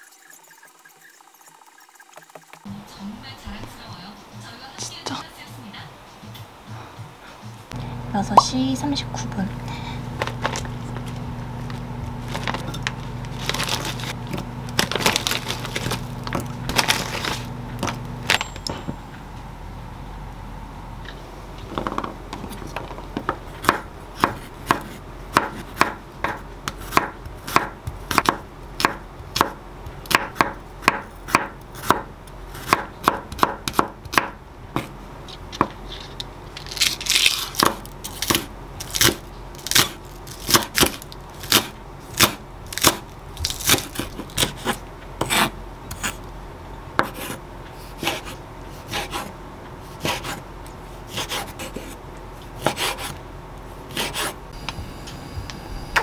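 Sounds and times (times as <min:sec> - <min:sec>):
knife chopping on wooden board: 0:23.2 - 0:34.9, 0:47.0 - 0:47.4, 0:52.6 - 0:53.2.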